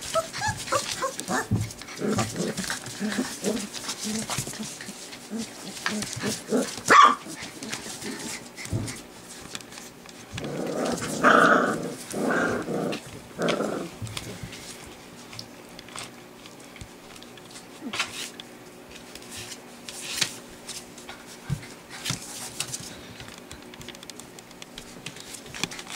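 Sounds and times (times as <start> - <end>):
puppies growling: 0.0 - 14.7.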